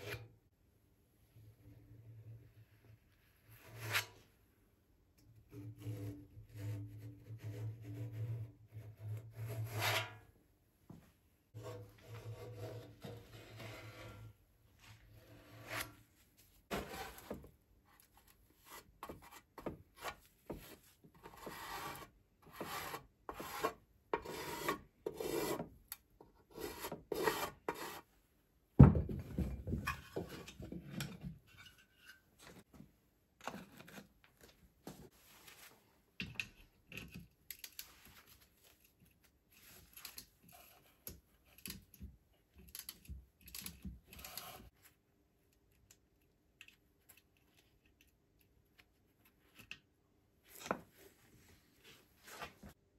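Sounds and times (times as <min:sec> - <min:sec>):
heavy thump on wooden blocks: 0:28.8 - 0:29.9.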